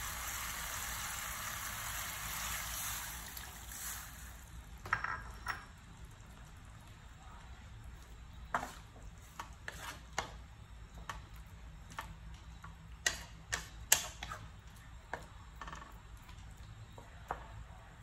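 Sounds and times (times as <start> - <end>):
wooden spatula scraping metal pan: 8.6 - 10.3.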